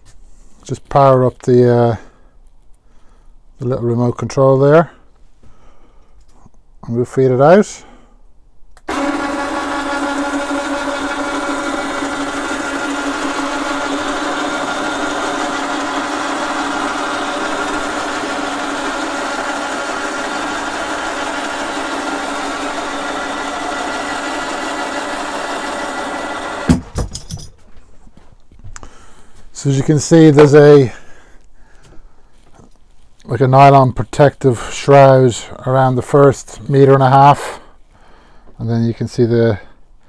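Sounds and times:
electric winch motor whining: 8.9 - 26.8.

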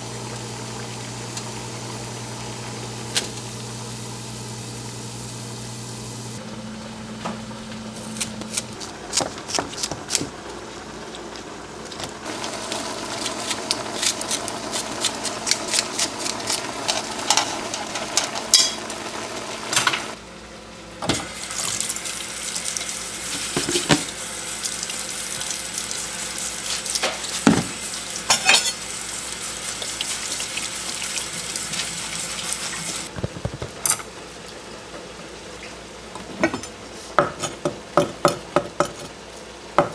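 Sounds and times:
dishes and utensils clinking: 28.3 - 28.8.

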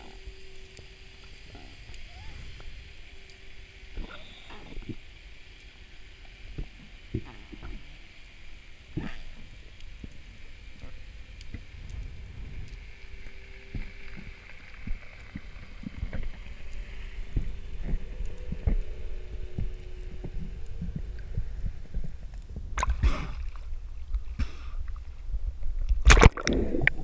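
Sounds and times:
faint steady hum: 0.0 - 27.0
muffled underwater rumble: 0.0 - 27.0.

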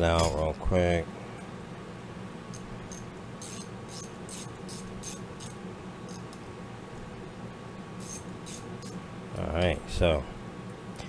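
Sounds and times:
ratchet wrench clicking: 2.5 - 6.3, 8.0 - 9.0.

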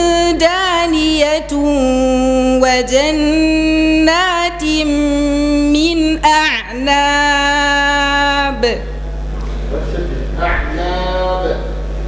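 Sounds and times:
man chanting melodically: 9.8 - 12.0.

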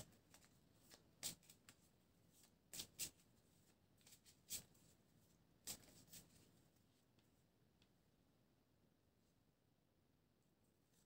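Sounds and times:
paper cards rustling: 0.0 - 3.2.

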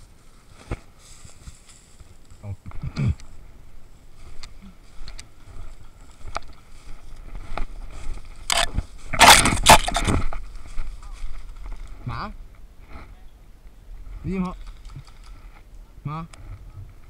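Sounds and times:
footsteps crunching through dry leaves: 0.0 - 2.4, 3.7 - 11.9
twigs snapping: 8.5 - 10.3.

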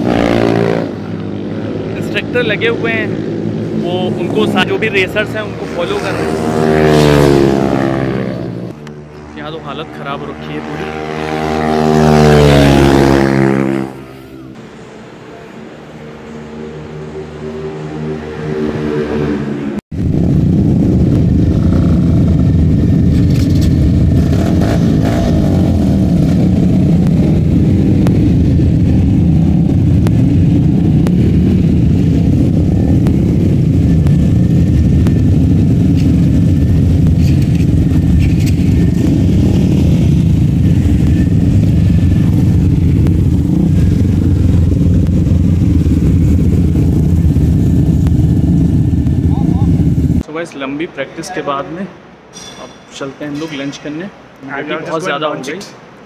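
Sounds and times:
racing motorcycle engine: 0.0 - 50.2
wind noise on microphone: 19.9 - 50.3.

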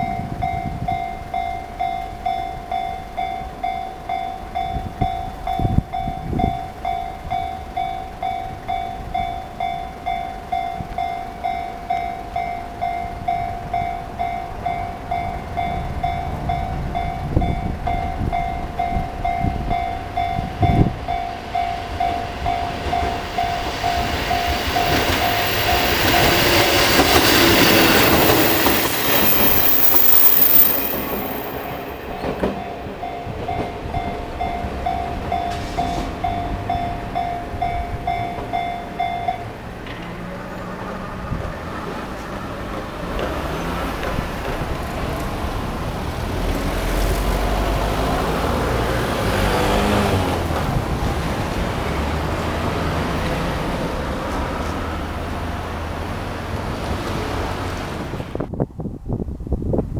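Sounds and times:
level crossing bell ringing: 0.0 - 39.6
distant traffic: 0.0 - 58.5
wind rumble: 0.0 - 59.9.

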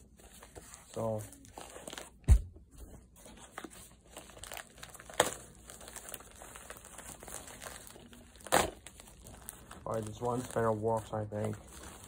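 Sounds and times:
packaging crinkling and rustling: 0.3 - 2.4, 3.2 - 12.0
sharp packaging crackle: 4.0 - 12.0.

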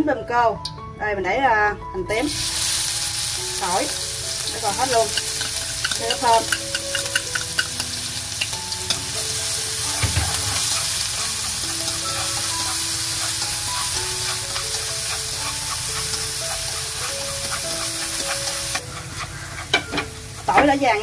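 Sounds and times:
shallots sizzling in oil: 2.1 - 21.0
chopsticks ticking against pan: 4.4 - 9.2, 9.8 - 20.8.

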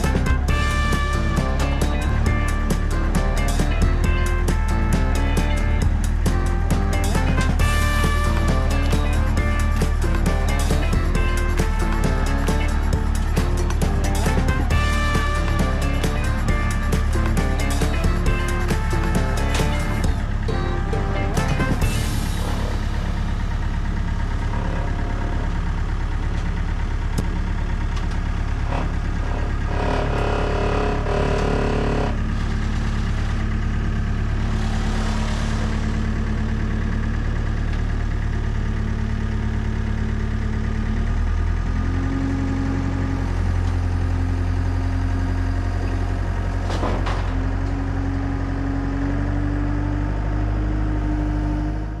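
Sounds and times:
loader diesel engine running: 0.0 - 52.0.

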